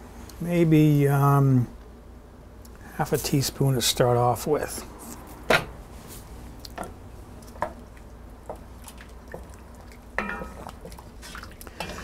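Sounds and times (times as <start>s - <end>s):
spoon stirring thick stew: 7.4s - 12.0s.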